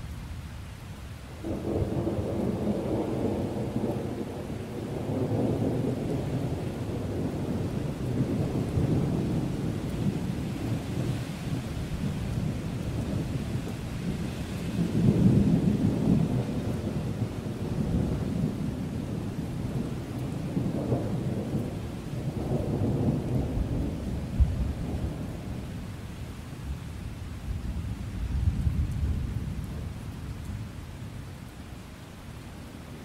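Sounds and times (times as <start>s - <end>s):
steady rain: 0.0s - 33.0s
thunder rumbling: 1.4s - 25.7s.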